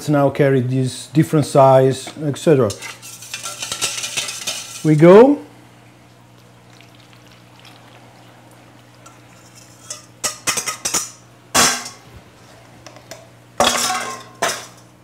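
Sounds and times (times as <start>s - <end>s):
metal bowl clicking and clinking: 2.7s - 5.0s, 9.0s - 12.0s
liquid pouring through funnel: 6.0s - 9.8s.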